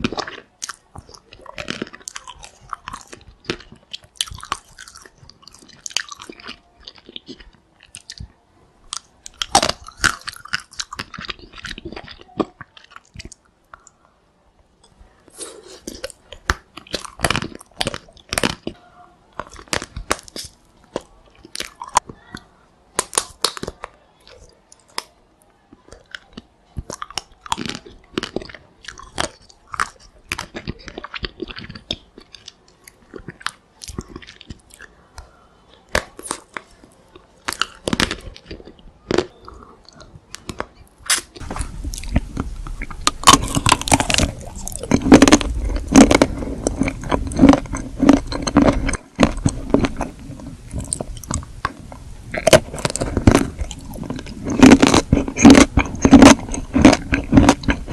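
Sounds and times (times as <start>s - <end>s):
chewing and wet mouth sounds: 0.0s - 14.2s, 14.8s - 57.9s
teeth cracking chocolate shell: 8.9s - 14.0s, 19.4s - 22.1s, 23.0s - 25.2s, 35.9s - 57.9s
steady low rumble: 41.4s - 54.4s.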